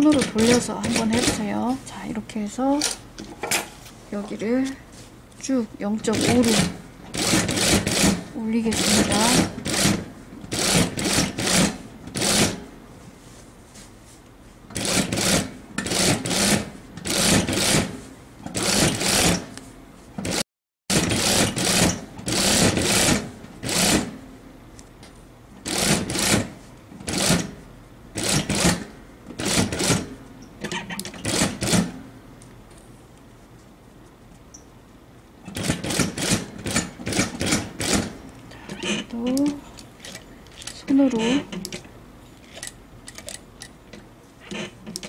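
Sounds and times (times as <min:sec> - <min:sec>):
sewing machine stitching in bursts: 0:00.0 - 0:01.5, 0:06.0 - 0:12.6, 0:14.8 - 0:19.5, 0:20.2 - 0:24.2, 0:25.6 - 0:27.5, 0:28.2 - 0:28.8, 0:29.4 - 0:30.1, 0:31.0 - 0:31.9, 0:35.5 - 0:38.2.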